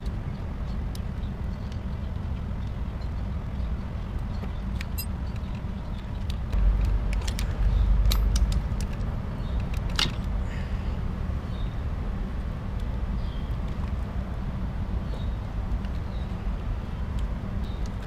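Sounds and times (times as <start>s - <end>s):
heavy low rumble: 0.0s - 18.0s
steady low hum: 0.0s - 18.0s
light metal clicks and clinks: 4.8s - 9.0s.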